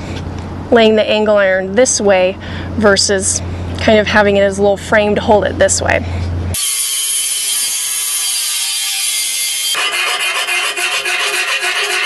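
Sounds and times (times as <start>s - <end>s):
angle grinder cutting metal: 6.6s - 12.0s.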